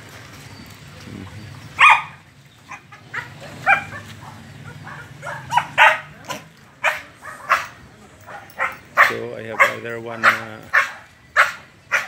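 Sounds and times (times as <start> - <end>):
dog barking: 1.8 - 2.2, 3.1 - 12.0.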